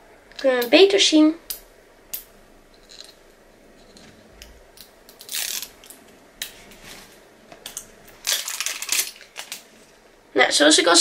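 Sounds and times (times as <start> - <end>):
packaging rustle: 8.1 - 9.8.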